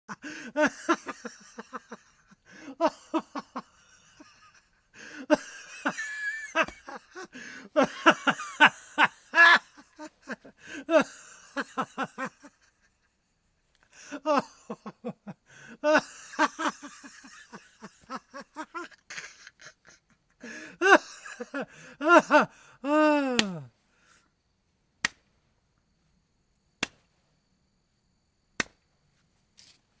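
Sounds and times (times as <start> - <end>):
man laughing heartily: 0.1 - 23.7.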